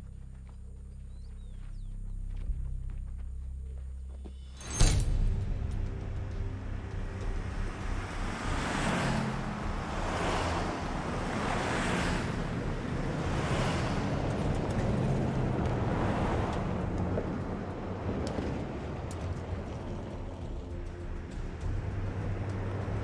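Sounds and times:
truck engine hum: 0:05.1 - 0:23.0.

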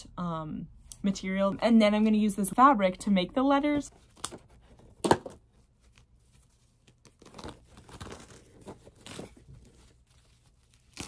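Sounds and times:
rustling and crinkling materials: 0:03.8 - 0:11.0.

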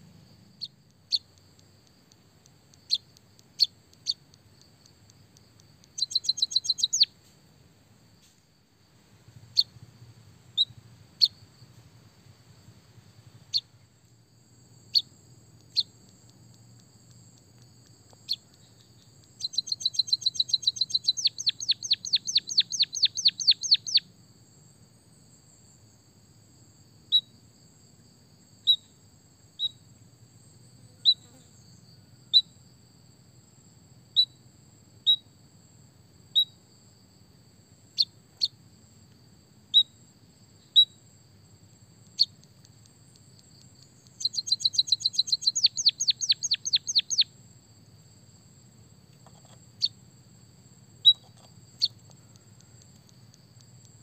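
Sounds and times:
bird chirping: 0:00.6 - 0:07.2, 0:09.5 - 0:09.7, 0:10.5 - 0:11.4, 0:13.5 - 0:13.8, 0:14.9 - 0:24.1, 0:29.6 - 0:29.9, 0:42.0 - 0:47.3, 0:49.2 - 0:50.0, 0:51.0 - 0:54.0.

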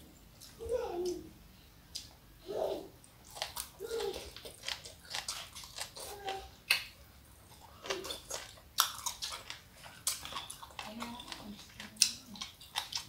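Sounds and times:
wet chewing and lip smacks: 0:01.9 - 0:02.2, 0:03.0 - 0:13.0.

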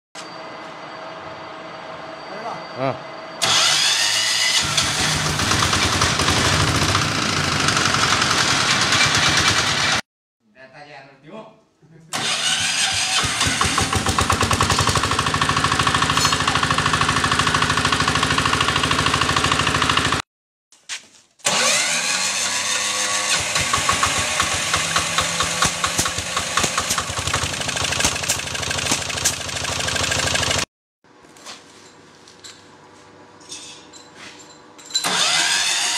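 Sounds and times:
engine electric starting: 0:03.4 - 0:10.0, 0:12.1 - 0:20.2, 0:21.4 - 0:30.7, 0:34.9 - 0:35.9
small diesel engines knocking: 0:04.6 - 0:10.0, 0:12.2 - 0:20.2, 0:23.3 - 0:30.7.

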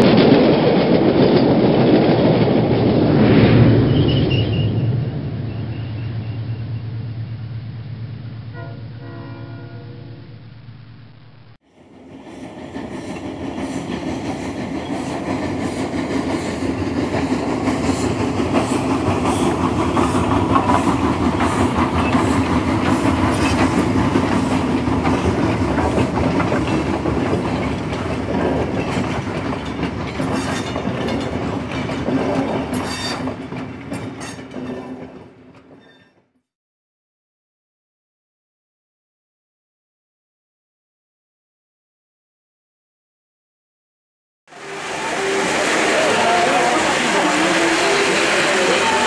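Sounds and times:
wheels clickety-clack over rail joints: 0:00.0 - 0:03.2, 0:11.8 - 0:36.2
model train rumbling: 0:00.0 - 0:35.7, 0:44.5 - 0:49.0.

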